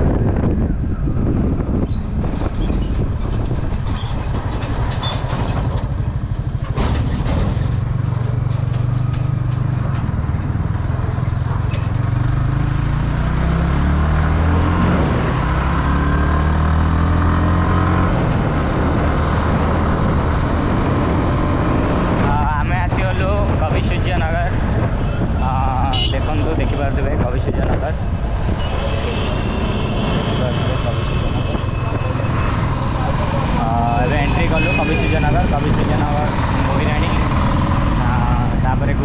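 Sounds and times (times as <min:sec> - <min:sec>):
wind rushing over microphone: 0:00.0 - 0:06.7, 0:12.0 - 0:39.0
loud low engine drone: 0:28.6 - 0:39.0.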